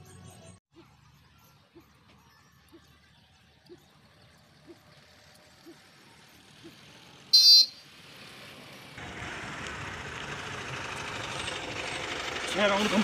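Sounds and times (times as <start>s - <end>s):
vehicle engine running: 0.2s - 13.0s
vehicle horn toot: 7.3s - 7.8s.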